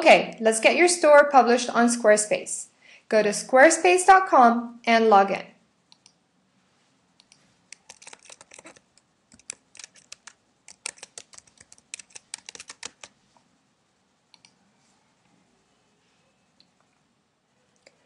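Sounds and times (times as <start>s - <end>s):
keyboard typing: 7.2s - 13.2s.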